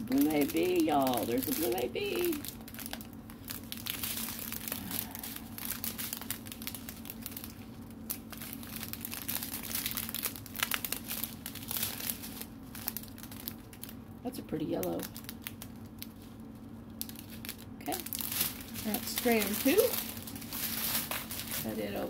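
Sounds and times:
plastic bags crinkling: 0:00.0 - 0:14.1, 0:14.7 - 0:22.0.

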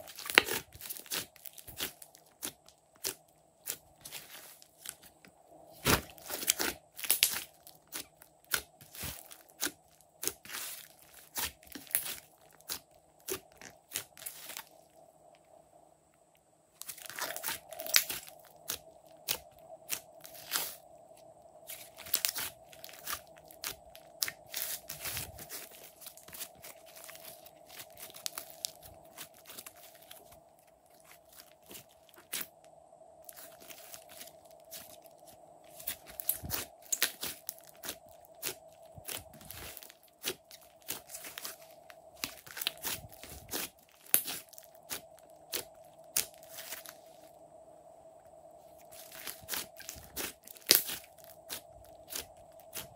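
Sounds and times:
faint steady hum: 0:00.0 - 0:52.9
hands squeezing sticky slime: 0:05.8 - 0:14.6, 0:16.8 - 0:20.8, 0:21.7 - 0:32.4, 0:35.8 - 0:46.9, 0:48.9 - 0:52.9.

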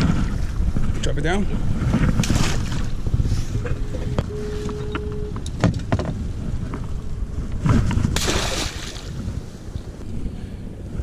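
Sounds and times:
wind rumbling on microphone: 0:00.0 - 0:11.0
thin steady tone: 0:03.6 - 0:05.5.

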